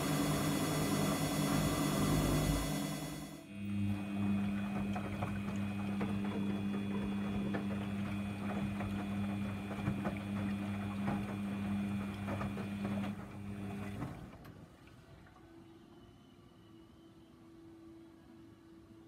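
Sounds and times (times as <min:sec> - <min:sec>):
washing machine motor hum: 0:00.0 - 0:14.5
laundry churning: 0:00.0 - 0:14.8.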